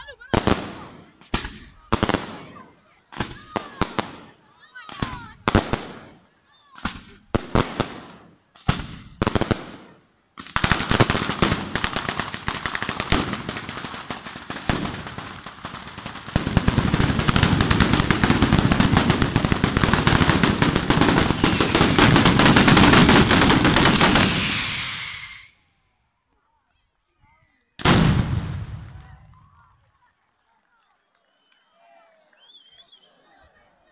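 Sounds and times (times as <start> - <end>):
firecrackers cracking: 0.3 - 6.2, 6.8 - 25.6, 27.8 - 29.2.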